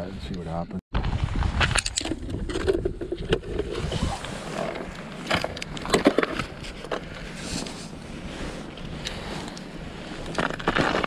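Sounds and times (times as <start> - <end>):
wind rumble on microphone: 0.9 - 11.0
ice chips crunching and scraping: 10.1 - 11.0.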